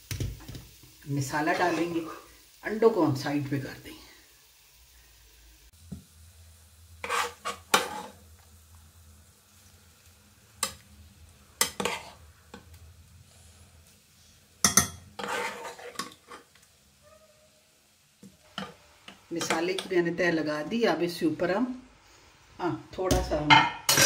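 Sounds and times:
spoon scraping pans: 7.0 - 8.2, 11.6 - 12.7, 14.6 - 16.6.

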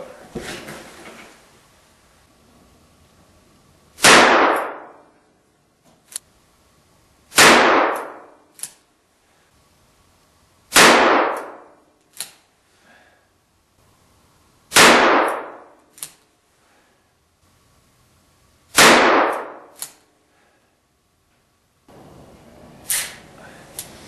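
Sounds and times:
revolver shots: 4.0 - 5.0.

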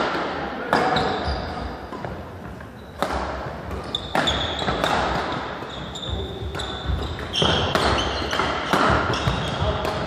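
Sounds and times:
shoes squeaking on wooden floor: 0.8 - 9.8
racket hitting shuttlecock: 2.9 - 10.0.

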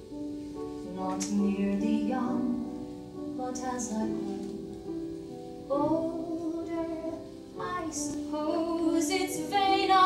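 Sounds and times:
woman singing with vibrato: 5.7 - 10.0.

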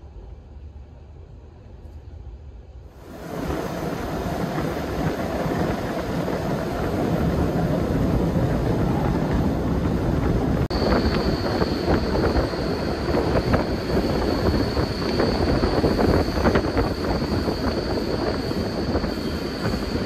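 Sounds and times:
train rumbling and rattling on rails: 0.0 - 20.0
high whine: 3.0 - 20.0.

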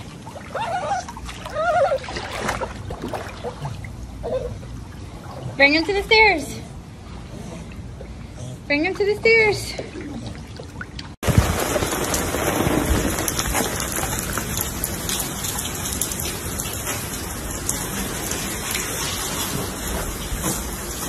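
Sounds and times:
rain falling: 11.2 - 21.0.

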